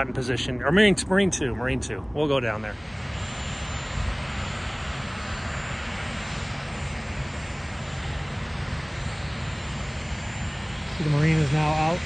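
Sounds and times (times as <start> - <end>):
helicopter engine and rotor rumble: 0.0 - 12.0.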